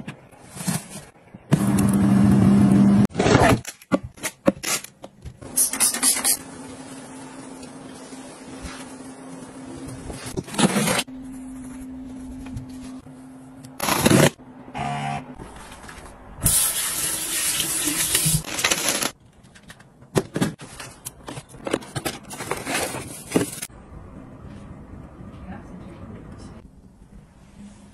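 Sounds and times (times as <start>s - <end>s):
cardboard and plastic crinkling: 18.2s - 23.7s.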